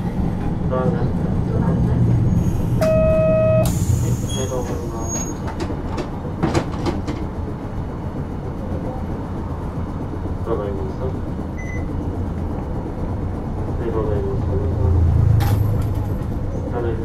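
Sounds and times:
electronic beep: 2.8 - 3.7.

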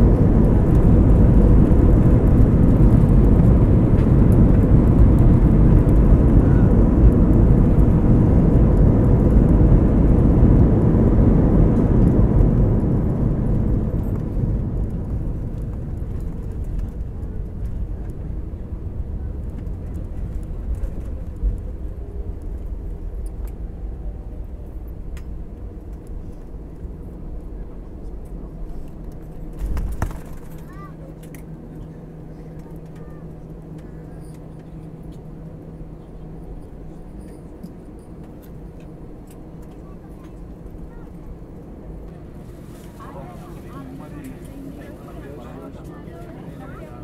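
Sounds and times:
rumble of aircraft engines and wheels: 0.0 - 47.0.

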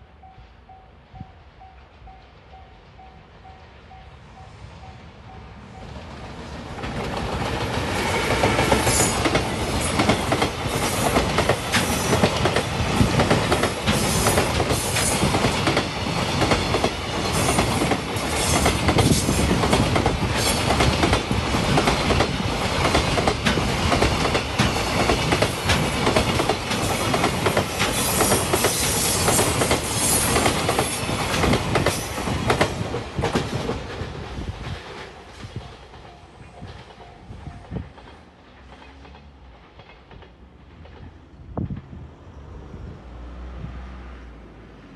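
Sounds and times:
freight train passing: 0.0 - 44.9.

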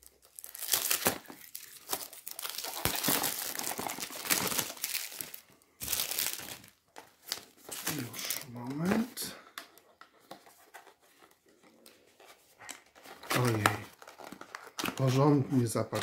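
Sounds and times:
plastic wrapping crinkling: 0.0 - 9.2, 12.7 - 16.0.

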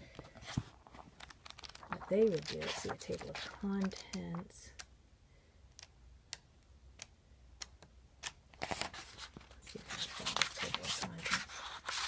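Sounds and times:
pages rustling: 0.1 - 4.5, 8.2 - 12.0
paper pages turning: 0.2 - 4.5, 8.2 - 12.0.

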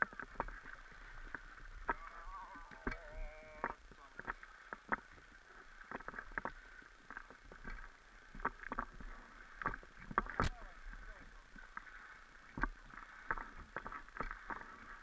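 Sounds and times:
water slapping against hull: 0.0 - 15.0
jetski engine hum: 1.8 - 4.7.

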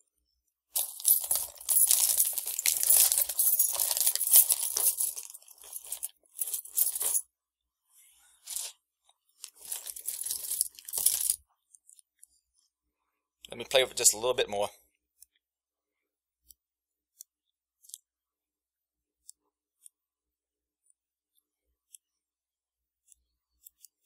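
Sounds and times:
luggage lock rustling and scraping: 0.8 - 7.2, 8.4 - 8.7, 9.4 - 11.4.

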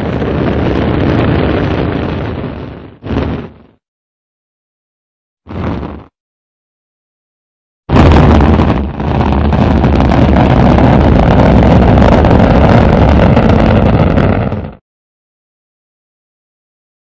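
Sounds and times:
rocket engine rumble: 0.0 - 3.8, 5.5 - 6.1, 7.9 - 14.8.

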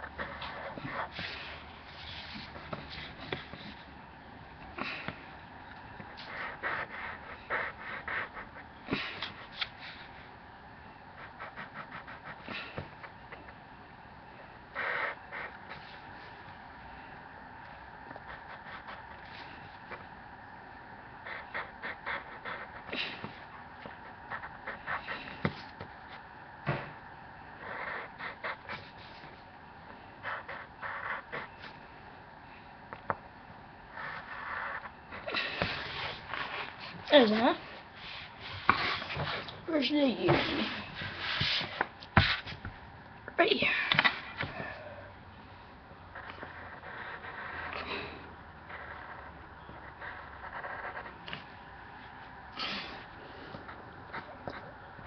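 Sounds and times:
drawing tool scratching paper: 0.0 - 3.9, 6.1 - 10.2, 11.2 - 12.9, 14.7 - 16.0, 18.1 - 20.0, 21.2 - 26.2, 27.6 - 29.4, 30.2 - 31.8, 33.9 - 39.4, 46.2 - 47.8, 48.6 - 51.2
pencil strokes on paper: 0.0 - 4.0.

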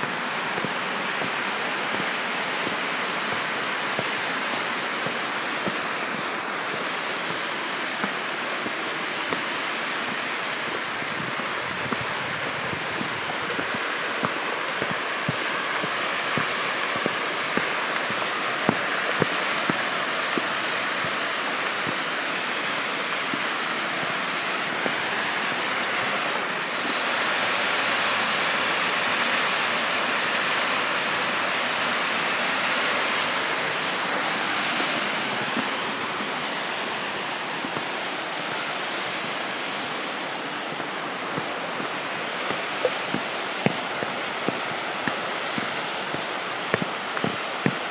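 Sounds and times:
light footsteps: 0.0 - 22.2, 33.5 - 47.8
waterfall rushing: 0.0 - 47.9.

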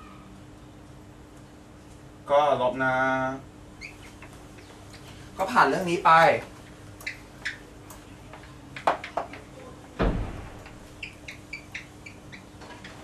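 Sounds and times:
heavy thump: 10.0 - 11.0.

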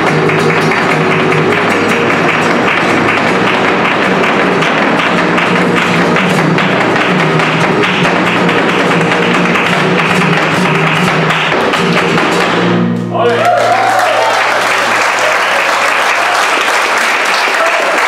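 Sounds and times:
hand-clapping: 0.0 - 12.7, 13.4 - 18.0
dancer's rapid footwork: 0.0 - 13.0
flamenco guitar: 0.0 - 13.1.

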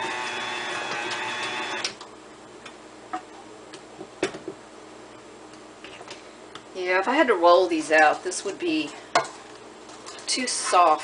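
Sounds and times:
stand mixer running: 0.0 - 2.0.

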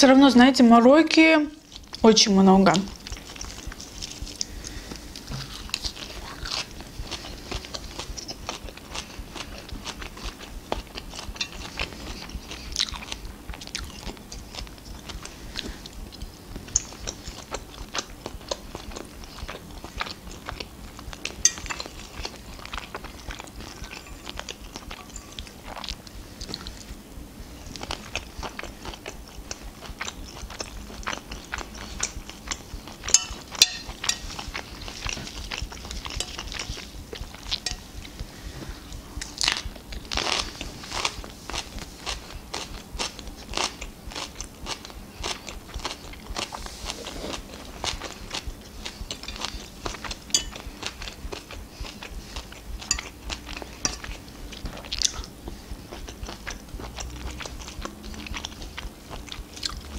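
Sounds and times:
wet mouth clicks while chewing: 2.9 - 26.9, 47.4 - 59.9.

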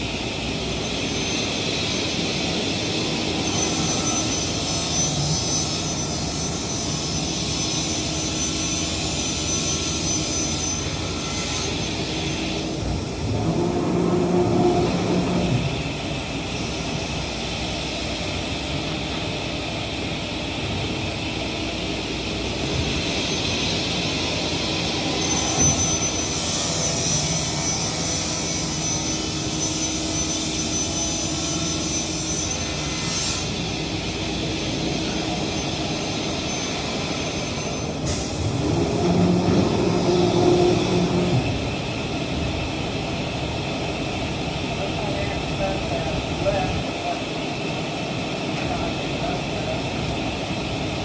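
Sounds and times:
thin high whine: 0.0 - 18.2, 22.0 - 42.5
woodworking machinery running: 0.0 - 51.0.

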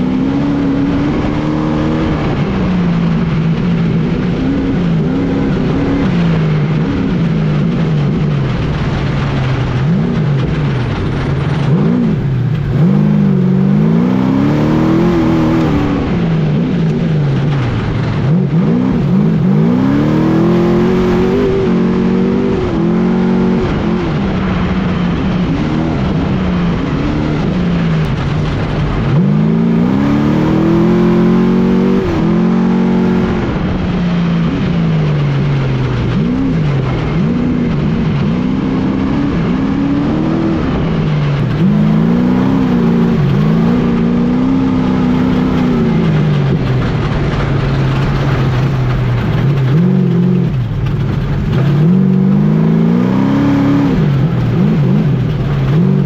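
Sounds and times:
truck engine revving: 0.0 - 56.0
tyre dirt and wind noise: 0.0 - 56.0.

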